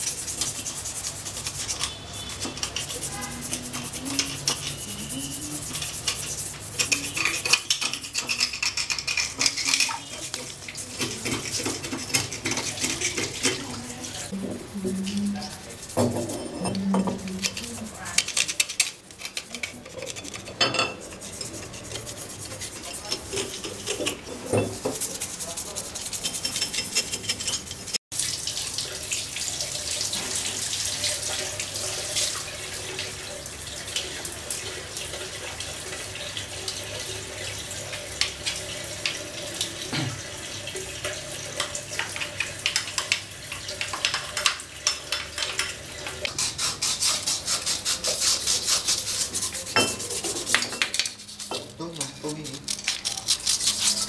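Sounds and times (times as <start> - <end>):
scrubbing by hand: 0.0 - 28.0, 46.3 - 54.0
tap water running: 0.0 - 54.0
screwdriver scraping metal: 0.2 - 10.4, 15.9 - 28.0, 46.8 - 54.0.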